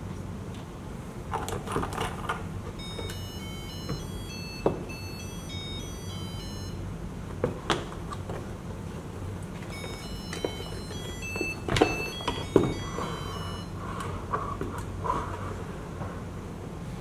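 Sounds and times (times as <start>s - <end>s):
electronic buzzer beeping melody: 2.8s - 6.8s, 9.7s - 13.8s.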